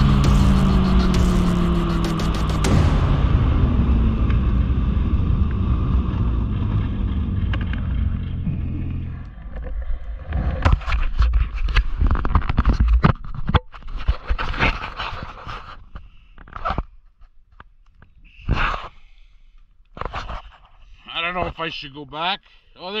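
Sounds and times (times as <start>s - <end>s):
scraping and rustling: 8.9s - 17.4s, 20.0s - 20.8s.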